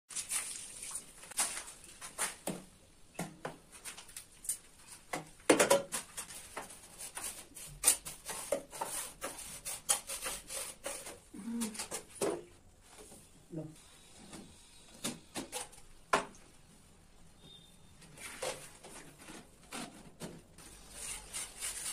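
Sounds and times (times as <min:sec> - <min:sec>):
scraping of wet mortar: 0:20.6 - 0:21.9.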